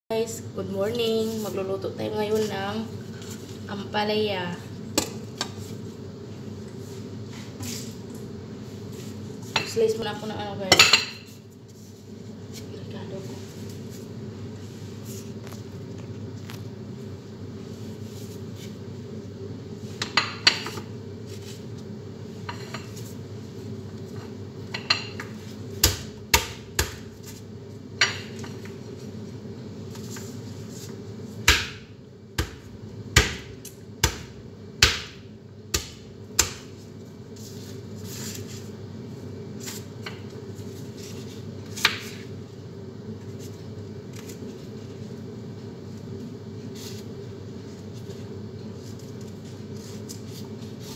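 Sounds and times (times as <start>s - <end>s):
steady background hum: 0.1s - 50.9s
knife chopping on cutting board: 25.8s - 27.1s, 31.5s - 36.7s.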